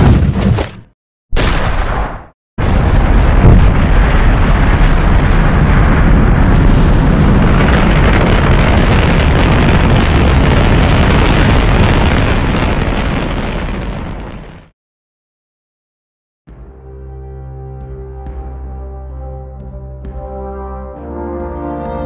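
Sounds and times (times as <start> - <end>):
rocket engine roaring: 2.6 - 14.4.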